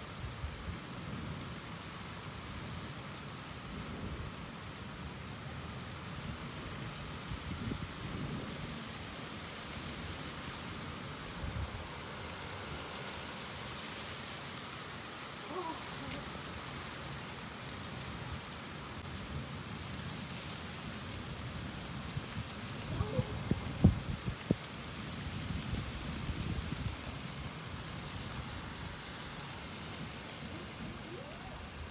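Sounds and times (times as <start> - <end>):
steady rain falling: 0.0 - 31.9
thunder rumbling: 22.8 - 24.4.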